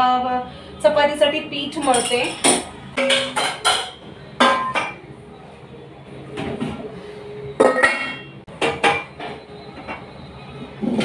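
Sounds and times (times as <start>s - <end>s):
metal dishes clanking: 1.8s - 5.0s, 7.6s - 10.0s.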